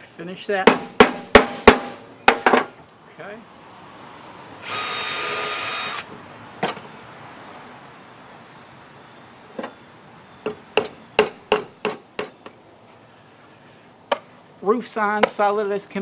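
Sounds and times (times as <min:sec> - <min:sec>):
sharp knocks on wood: 0:00.6 - 0:02.7, 0:10.4 - 0:12.4
power drill whirring: 0:04.6 - 0:06.1.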